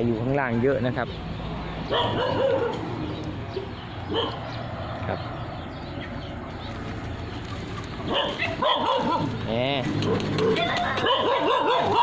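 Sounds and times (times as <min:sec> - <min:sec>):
dog yelp: 0:01.9 - 0:02.9, 0:04.1 - 0:04.4, 0:08.1 - 0:09.4, 0:10.1 - 0:12.0.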